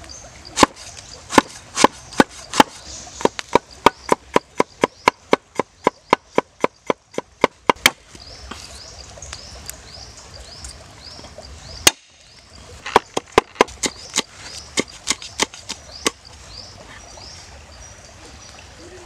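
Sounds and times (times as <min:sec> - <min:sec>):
cleaver chopping on wooden board: 0:00.6 - 0:08.0, 0:12.9 - 0:16.2.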